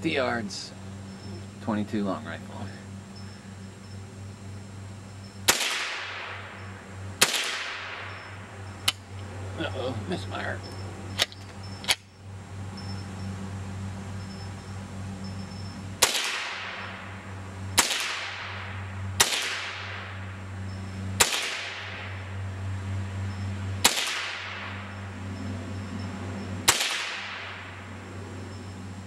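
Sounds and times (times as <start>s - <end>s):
rifle shots with echo: 5.5s - 6.6s, 7.2s - 8.3s, 16.0s - 17.0s, 17.8s - 20.2s, 21.2s - 22.2s, 23.8s - 24.8s, 26.6s - 27.7s.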